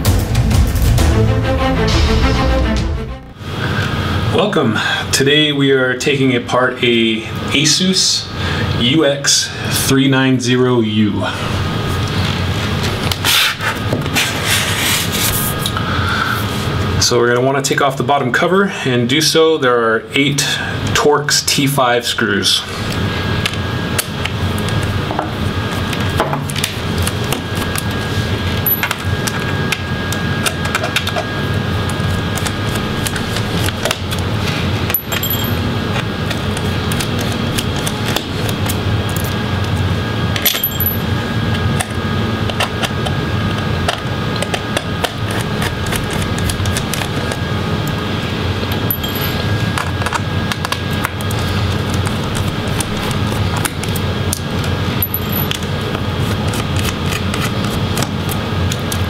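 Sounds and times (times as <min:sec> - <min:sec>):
steady background hum: 0:00.0 - 0:59.0
screwdriver clicking and scraping: 0:43.9 - 0:47.3, 0:56.2 - 0:58.1.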